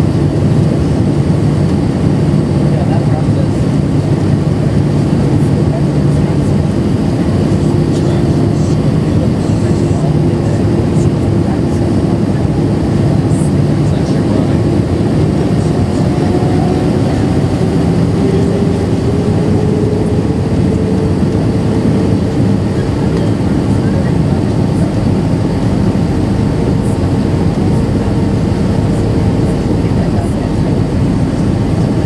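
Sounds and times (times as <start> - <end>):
airflow and jet engine rush: 0.0 - 32.0
humming tone rising in pitch: 14.5 - 22.8.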